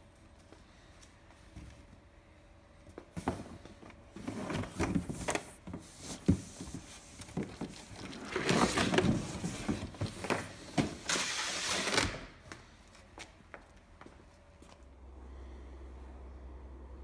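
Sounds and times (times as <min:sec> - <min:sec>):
cardboard scraping and rustling: 0:04.1 - 0:12.2.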